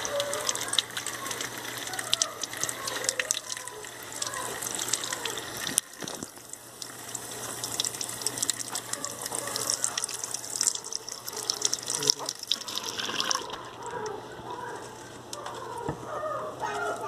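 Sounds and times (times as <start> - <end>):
tap water splashing into sink: 0.0 - 13.6
small splashes and drips: 0.0 - 14.2.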